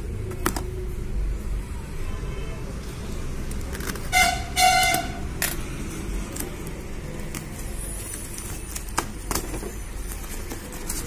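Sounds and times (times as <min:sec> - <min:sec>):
low traffic rumble: 0:00.0 - 0:11.0
car horn toot: 0:04.1 - 0:05.2
paper packaging crackling: 0:05.5 - 0:11.0.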